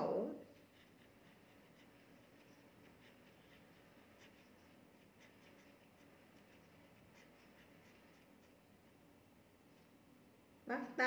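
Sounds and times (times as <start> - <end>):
pen scratching on paper: 0.5 - 8.6.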